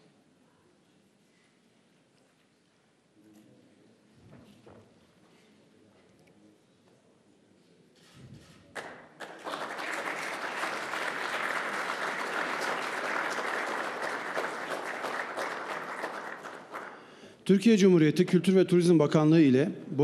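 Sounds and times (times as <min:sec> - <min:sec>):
audience applauding: 0:08.8 - 0:17.3.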